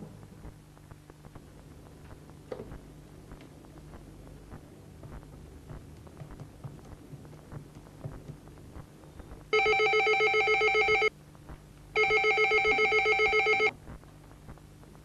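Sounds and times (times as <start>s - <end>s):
telephone ringing electronic trill: 9.6s - 11.1s, 12.0s - 13.7s.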